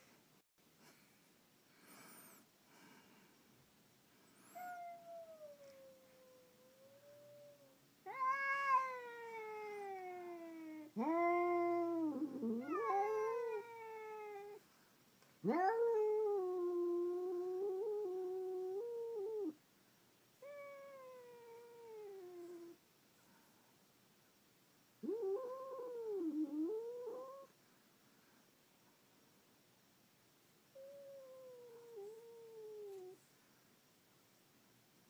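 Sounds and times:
cats yowling: 4.6s - 14.6s, 25.0s - 27.5s.

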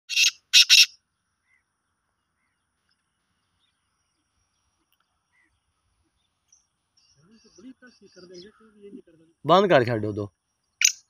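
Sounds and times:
francolin calling harsh notes: 0.1s - 1.0s.

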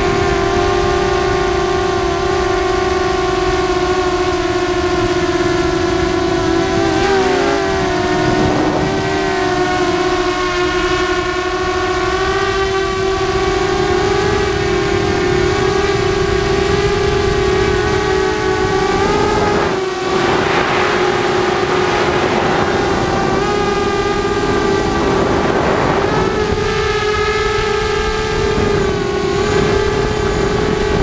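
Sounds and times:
drone motors whining: 0.0s - 31.0s
rushing air noise: 5.9s - 10.0s, 16.0s - 31.0s.

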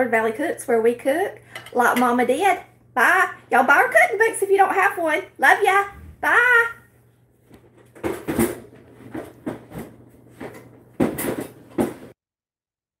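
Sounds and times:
irregular knocks and rattles: 7.5s - 12.2s.

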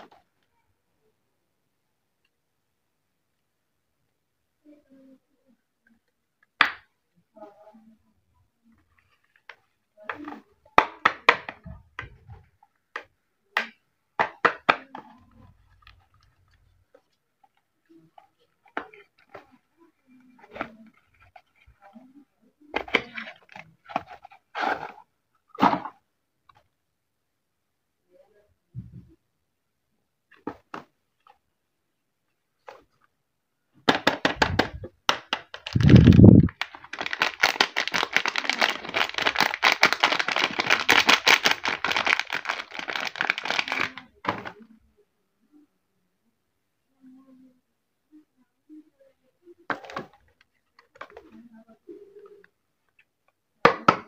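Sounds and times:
wrapper crinkling: 34.3s - 44.2s.

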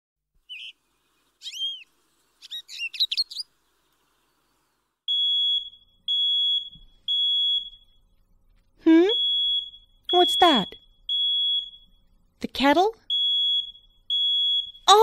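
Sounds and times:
bird chirps: 0.4s - 4.8s
smoke alarm beeping: 5.1s - 8.1s, 9.1s - 12.2s, 13.1s - 15.0s.

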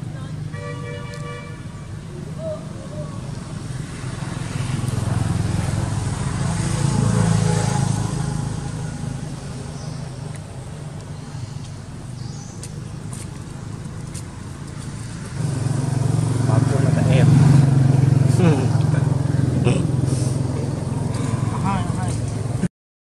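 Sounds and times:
vehicle driving past: 2.9s - 11.6s, 13.1s - 22.6s.

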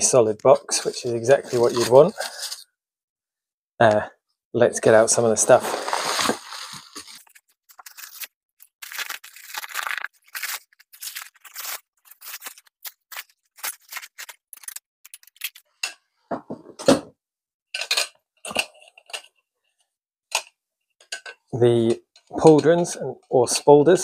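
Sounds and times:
plastic wrap crinkling: 5.5s - 15.7s.

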